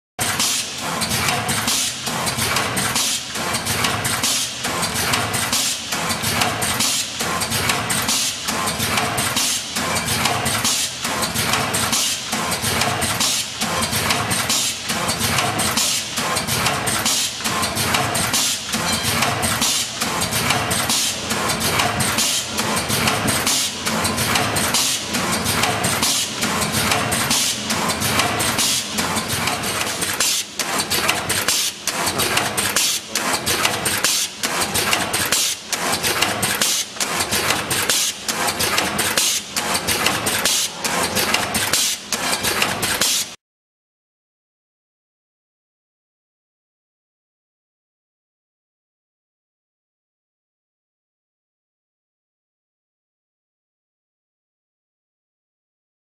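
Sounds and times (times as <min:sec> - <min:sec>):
packaging machine knocking: 0:00.2 - 0:43.2
machine hum: 0:16.4 - 0:33.8.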